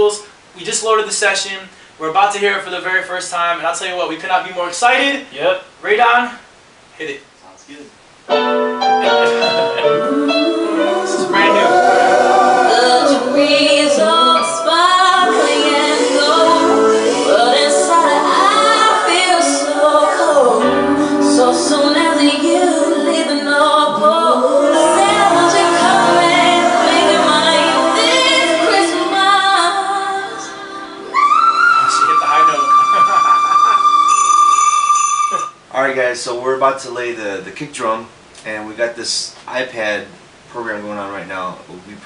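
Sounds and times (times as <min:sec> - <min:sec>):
layered vocal harmonies: 0:08.8 - 0:34.6
woman singing lead vocals: 0:09.8 - 0:34.4.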